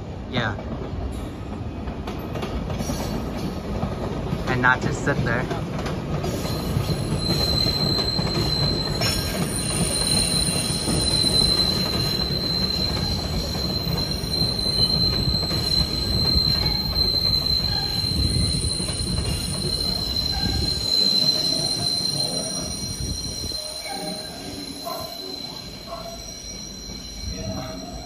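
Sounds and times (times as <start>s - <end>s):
train wheels rumbling on rail: 0.0s - 28.0s
high-pitched wheel squeal: 6.4s - 28.0s.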